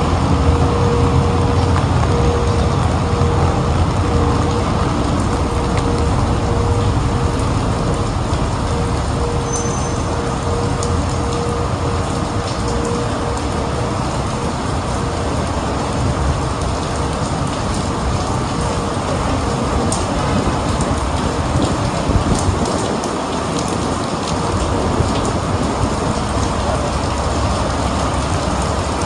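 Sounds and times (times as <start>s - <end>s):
steady hum: 0.0s - 14.2s
engines rumbling: 0.0s - 29.0s
heavy rain: 0.0s - 29.0s
wet tyres on road: 0.0s - 29.0s.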